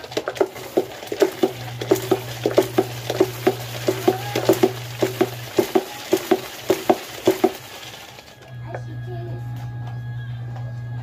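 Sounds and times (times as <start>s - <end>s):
scrubbing tiled floor: 0.0s - 8.4s.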